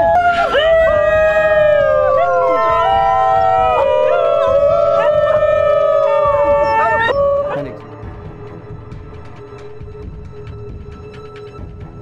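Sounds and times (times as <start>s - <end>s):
dogs howling in chorus: 0.0s - 7.8s.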